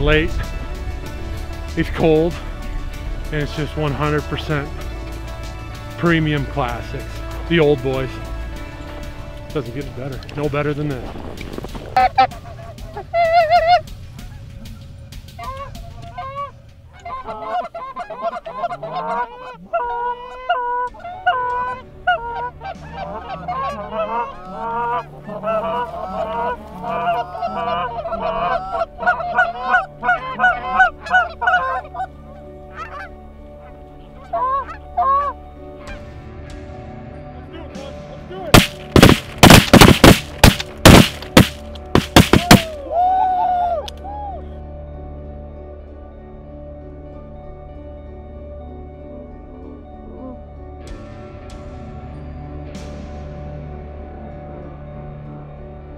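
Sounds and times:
geese honking: 12.0s - 14.5s, 15.4s - 35.4s, 38.6s - 42.8s
shotgun blasts: 38.6s - 42.7s.

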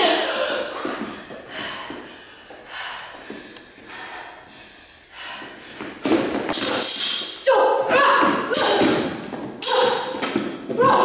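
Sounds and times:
people breathing hard: 0.0s - 7.4s.

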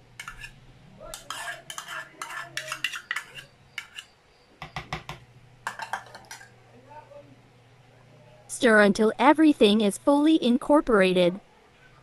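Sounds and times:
spoon scraping ceramic bowl: 0.2s - 4.2s.

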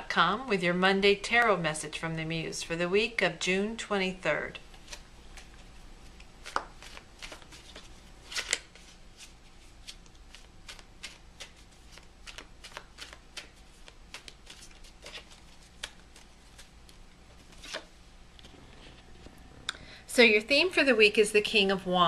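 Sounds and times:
cards being shuffled: 4.7s - 19.0s.

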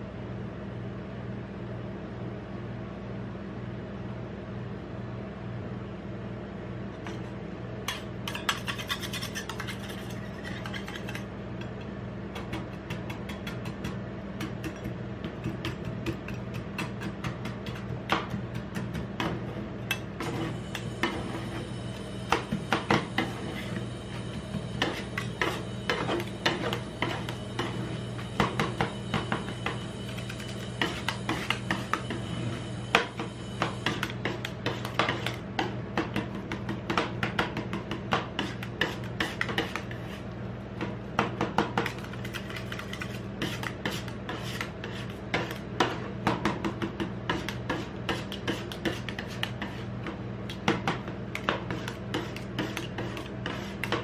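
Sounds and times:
steady low hum: 0.0s - 54.0s
spatulas scraping metal plate: 7.9s - 11.8s, 19.2s - 21.7s, 22.3s - 35.7s, 51.3s - 54.0s.

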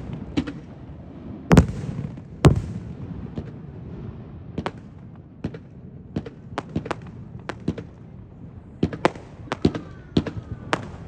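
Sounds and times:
fireworks bangs: 0.0s - 11.0s.

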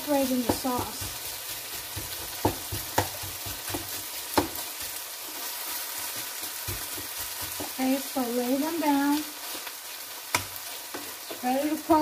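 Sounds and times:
beef and onions sizzling: 0.0s - 12.0s
spatula knocking against pan: 1.8s - 4.9s.

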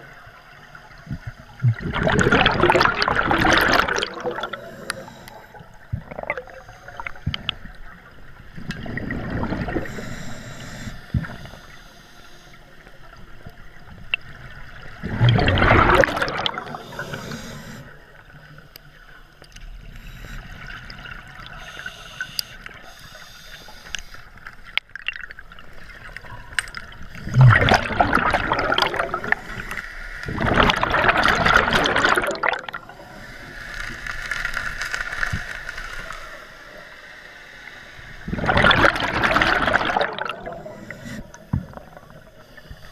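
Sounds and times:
gurgling exhaled bubbles: 1.1s - 7.8s, 8.6s - 10.2s, 14.1s - 18.2s, 26.0s - 33.2s, 38.2s - 42.4s
regulator breathing hiss: 4.4s - 5.8s, 6.5s - 7.3s, 9.7s - 12.9s, 16.6s - 18.0s, 19.7s - 24.4s, 29.2s - 30.3s, 32.8s - 34.3s, 40.4s - 41.6s, 42.2s - 42.9s.

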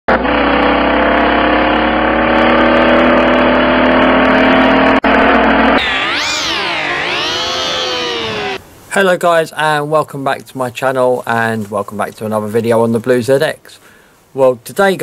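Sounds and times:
car engine accelerating: 0.3s - 8.6s.

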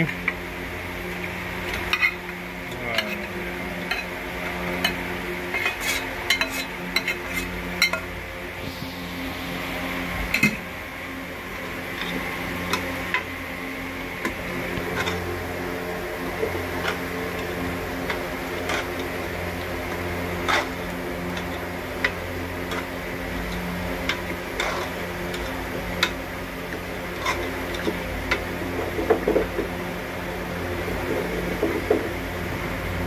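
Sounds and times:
steady low hum: 0.0s - 33.0s
metal spatula scraping a pot: 4.8s - 8.1s.

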